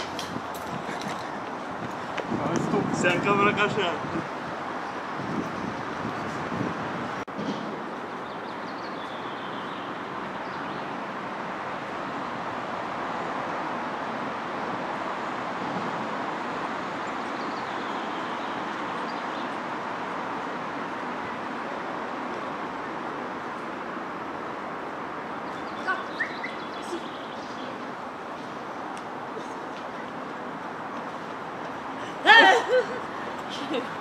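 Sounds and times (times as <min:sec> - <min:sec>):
steady outdoor rushing noise: 0:00.0 - 0:34.0
faint bird chirps: 0:25.4 - 0:27.8.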